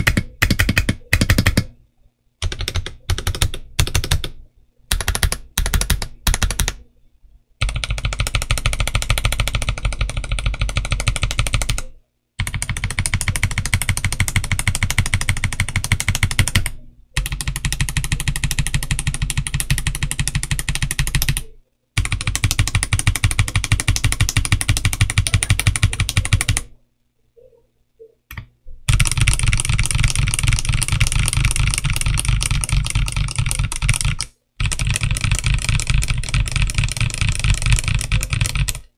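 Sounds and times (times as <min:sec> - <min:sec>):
fast typing on mechanical keyboard: 0:00.0 - 0:01.7, 0:02.4 - 0:06.8, 0:07.6 - 0:26.7, 0:28.9 - 0:38.9.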